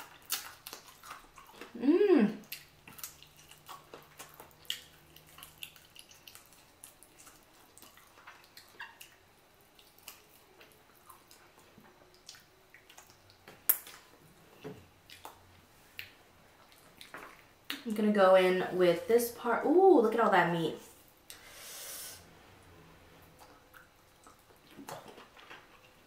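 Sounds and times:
wet chewing and lip smacks: 0.0s - 1.8s, 2.4s - 17.9s, 23.3s - 26.0s.

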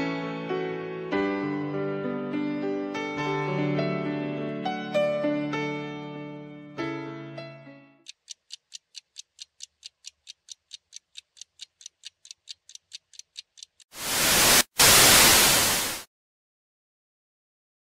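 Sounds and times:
piano music: 0.0s - 8.0s
fast countdown ticking: 8.1s - 14.0s
tv static burst: 14.0s - 16.1s.

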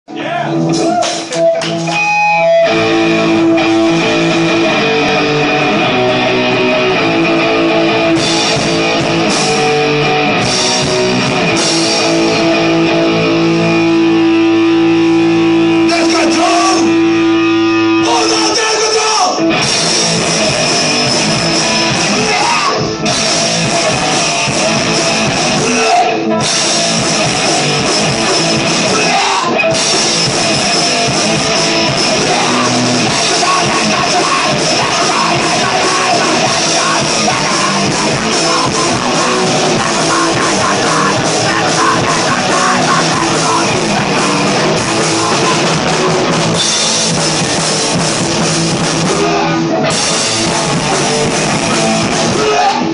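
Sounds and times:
distorted electric guitar: 0.1s - 52.9s
drum kit: 0.2s - 52.9s
lead vocals singing: 21.4s - 46.6s, 49.0s - 52.9s.

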